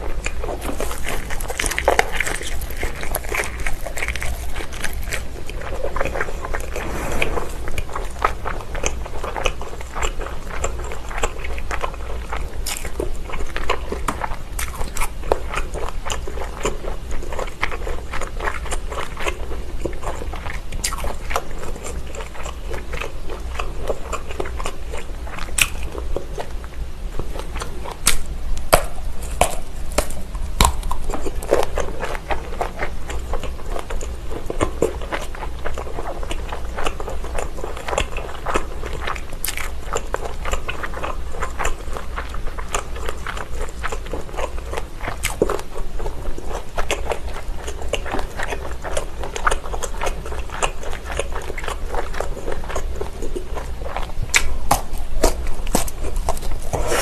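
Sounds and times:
biting and chewing: 0.0s - 57.0s.

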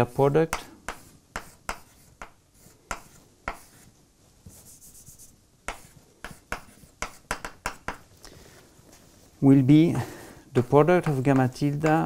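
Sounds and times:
chalk scratching on blackboard: 0.0s - 8.0s, 10.6s - 11.9s
chalk tapping on blackboard: 0.2s - 3.9s, 4.5s - 8.1s, 10.6s - 12.0s.

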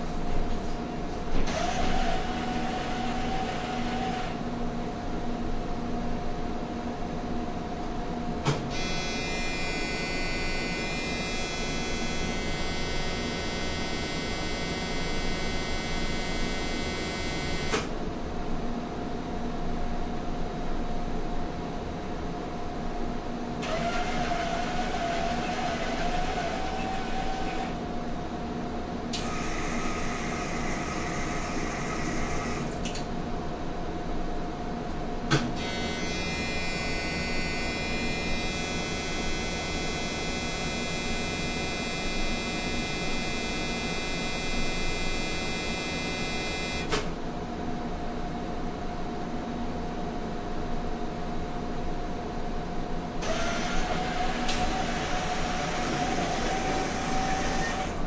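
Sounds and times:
steady electrical hum: 0.0s - 58.0s
machine whirring: 1.4s - 4.4s, 8.7s - 17.9s, 23.6s - 27.8s, 35.6s - 47.0s, 53.2s - 58.0s
high-pitched electric buzz: 8.7s - 17.9s, 35.6s - 46.9s.

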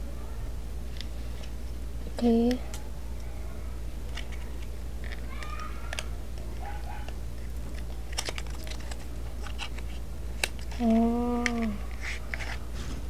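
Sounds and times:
steady low hum: 0.0s - 13.0s
packaging clicks and handling: 4.1s - 12.6s.

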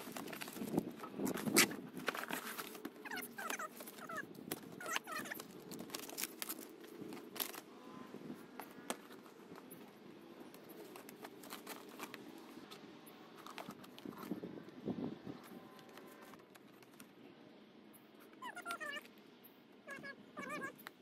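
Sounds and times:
plastic sheets clicking and crinkling: 0.0s - 7.7s, 8.4s - 14.4s, 15.4s - 17.2s.

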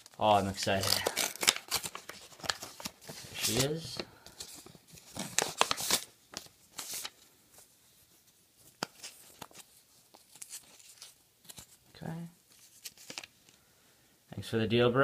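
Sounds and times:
packaging tearing: 0.0s - 3.8s, 5.0s - 7.2s
packaging rustling: 0.0s - 7.7s, 8.7s - 11.8s, 12.5s - 13.6s.

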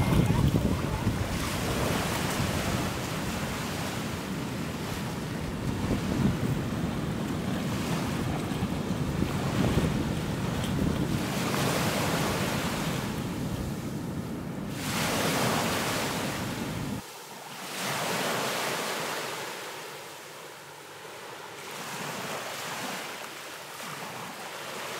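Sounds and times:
wind rumbling on microphone: 0.0s - 17.0s
sea waves washing: 0.0s - 24.9s.

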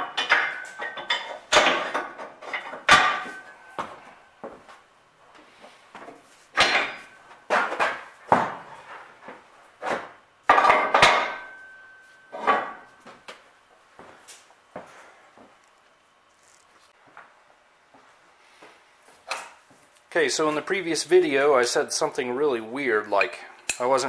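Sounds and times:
metal parts knocking and clanking: 0.0s - 3.4s
metallic ring: 10.9s - 12.9s.

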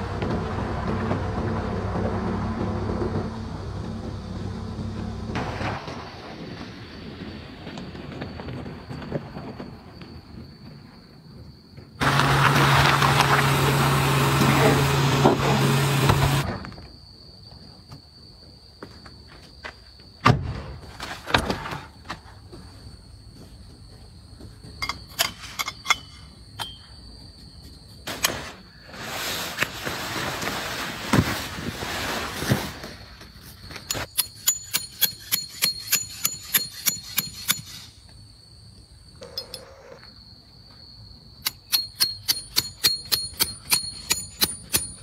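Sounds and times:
canvas tent rustling: 28.1s - 33.7s
hammer striking metal tent stake: 33.9s - 37.9s, 41.4s - 45.0s.

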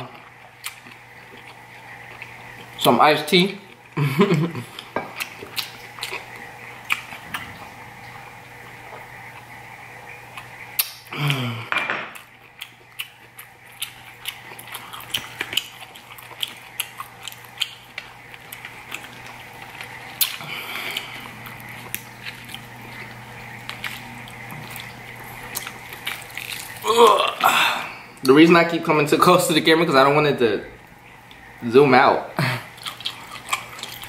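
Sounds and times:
short falling vocal sound: 26.8s - 28.0s.

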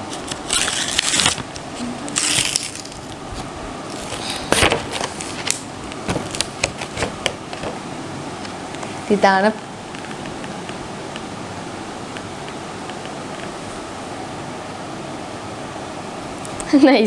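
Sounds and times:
paper packaging rustling: 0.1s - 7.8s.

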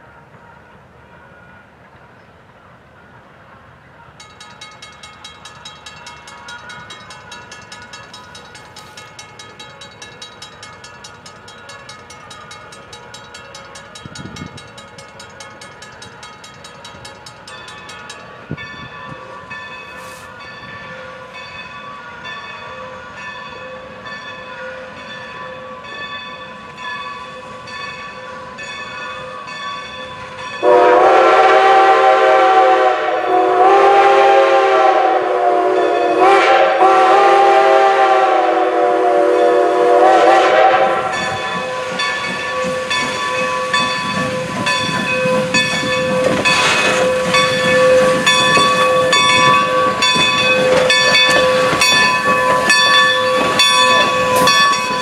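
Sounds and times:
steam locomotive chime whistle: 3.8s - 55.0s
crossing signal bell dinging: 4.1s - 31.0s, 41.0s - 55.0s.

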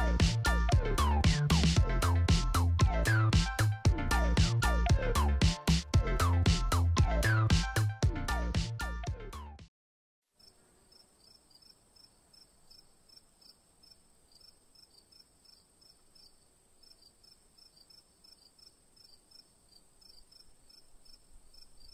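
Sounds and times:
crickets chirping: 10.4s - 21.9s.

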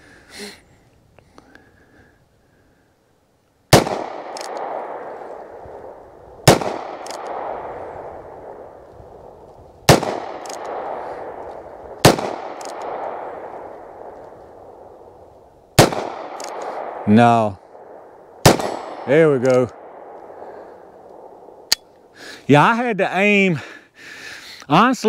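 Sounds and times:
revolver shots echoing: 3.7s - 8.6s, 9.9s - 14.2s, 15.8s - 17.0s, 17.7s - 20.2s.

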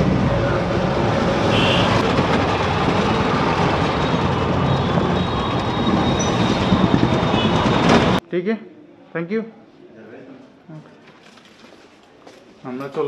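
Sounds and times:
road and wind noise: 0.0s - 8.2s.

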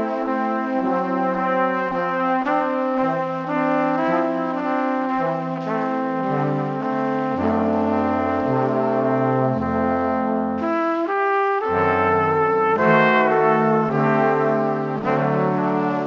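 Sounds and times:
slow chords over bass line: 11.6s - 15.7s.

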